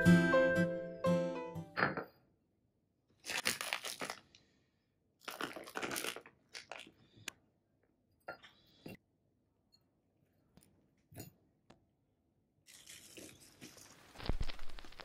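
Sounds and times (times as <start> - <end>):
plastic bag crinkling: 3.2 - 4.4, 5.2 - 7.0, 13.9 - 15.0.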